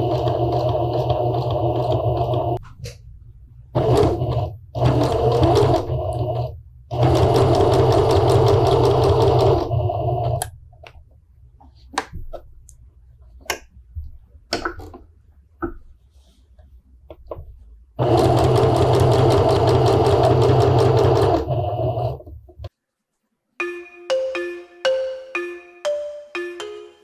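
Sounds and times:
sewing machine stitching: 0:00.0 - 0:02.6, 0:03.7 - 0:10.5, 0:18.0 - 0:22.4.

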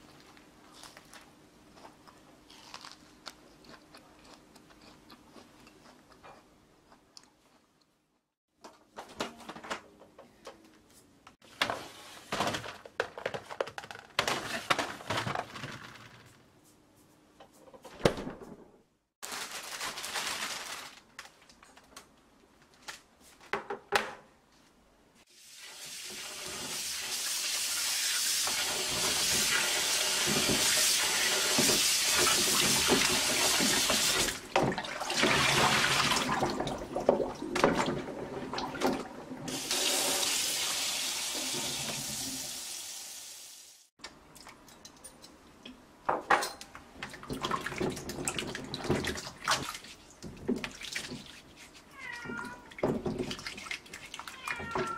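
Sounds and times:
plastic bag rustling: 0:19.2 - 0:22.0.

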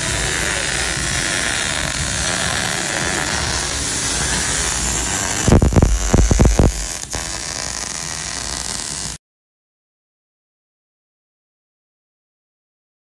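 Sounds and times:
welding hiss: 0:00.0 - 0:09.2
loud low thumps: 0:05.4 - 0:07.0.

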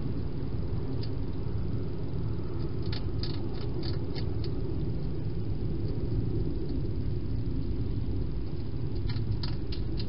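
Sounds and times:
steady low rumble: 0:00.0 - 0:10.0
hedgehog crunching food: 0:02.6 - 0:04.6, 0:09.0 - 0:10.0.

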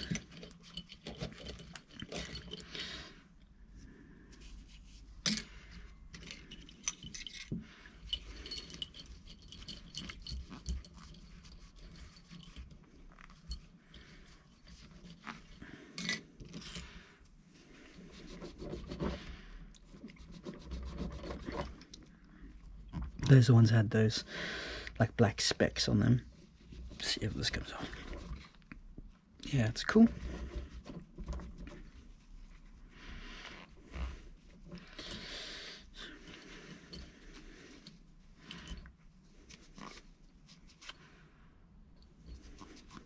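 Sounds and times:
small metal parts clinking: 0:00.0 - 0:02.9, 0:05.2 - 0:14.0.

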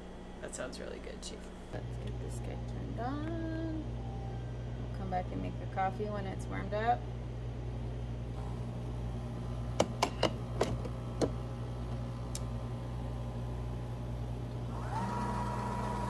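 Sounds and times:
low hum: 0:00.0 - 0:16.0
espresso machine whine: 0:07.9 - 0:16.0.

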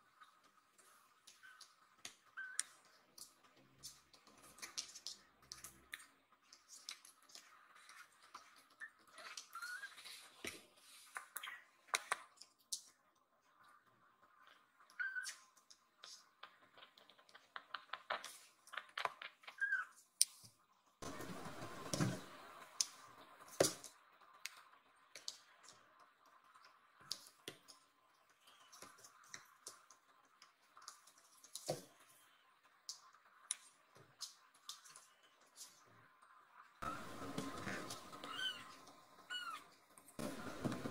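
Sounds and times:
kittens' claws clicking on floor: 0:14.9 - 0:20.6.

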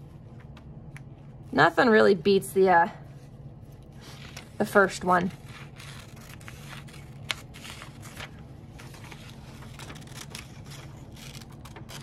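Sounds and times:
steady low hum: 0:00.0 - 0:12.0
paper rustling: 0:03.6 - 0:12.0.

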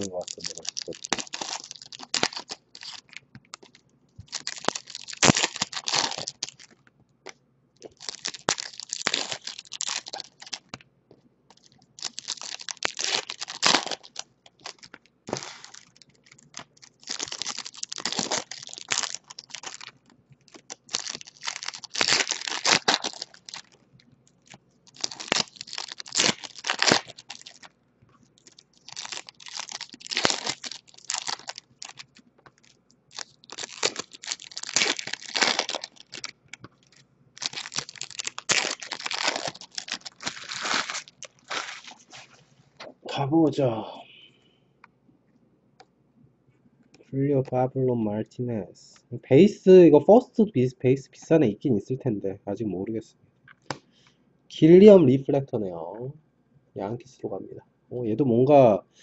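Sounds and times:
foil wrappers tearing and crinkling: 0:00.0 - 0:06.8, 0:07.8 - 0:10.8, 0:11.5 - 0:23.8, 0:24.4 - 0:27.7, 0:28.4 - 0:42.4.

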